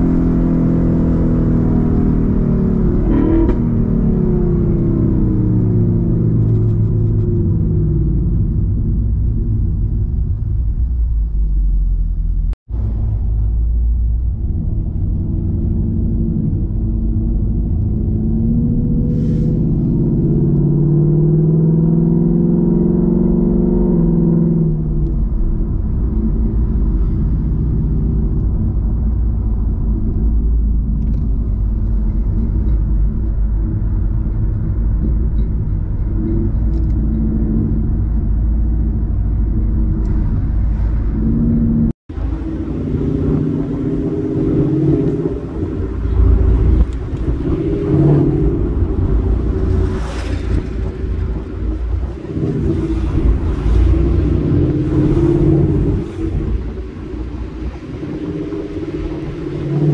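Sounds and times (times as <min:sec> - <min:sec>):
car engine droning: 0:00.0 - 0:59.9
road and tyre noise: 0:00.0 - 0:59.9
rushing air: 0:18.8 - 0:20.3, 0:39.6 - 0:59.9.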